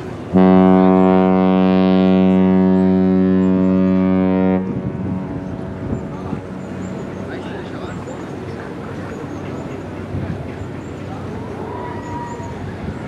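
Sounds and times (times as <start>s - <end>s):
ship's horn blast: 0.1s - 8.0s.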